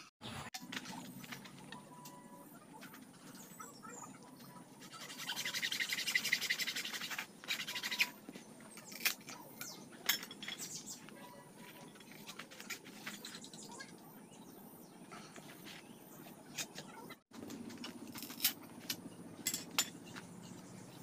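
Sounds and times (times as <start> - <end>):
knife scraping bamboo strips: 4.8 - 8.2.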